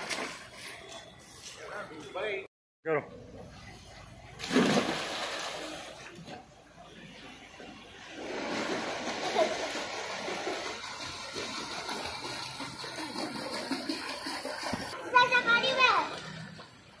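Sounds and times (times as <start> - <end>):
water splashing in pool: 0.0 - 1.0, 4.3 - 16.4.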